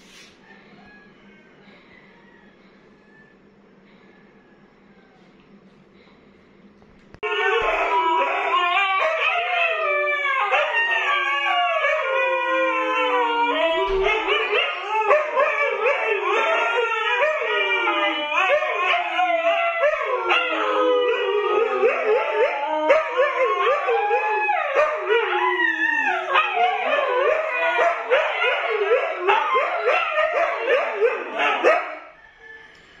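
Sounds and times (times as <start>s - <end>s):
dogs howling and yipping: 7.2s - 32.4s.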